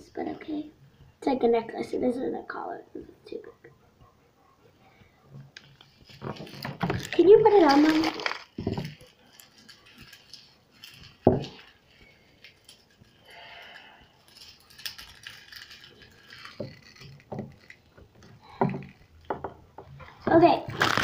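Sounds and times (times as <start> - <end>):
plastic toy clicking and rattling: 5.6 - 19.5.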